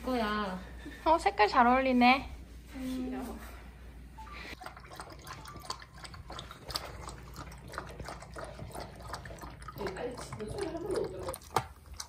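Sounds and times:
dog lapping water: 4.6s - 12.0s.

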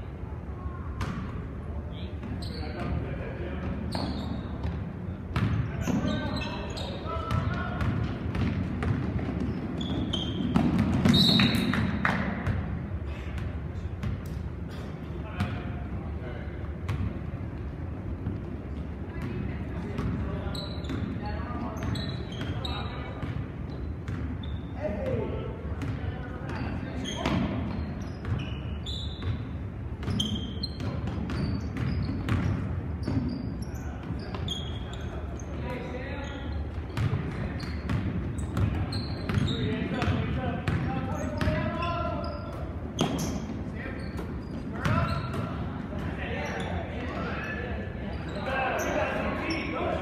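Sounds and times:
low murmur of crowd: 0.0s - 50.0s
sneaker squeaks: 2.0s - 15.8s, 16.8s - 50.0s
basketball bouncing on wood floor: 7.3s - 12.7s.

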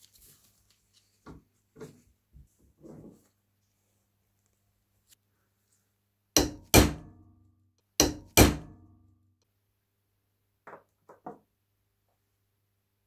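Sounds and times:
hammer striking steel wrench: 6.4s - 7.3s, 8.0s - 9.0s.

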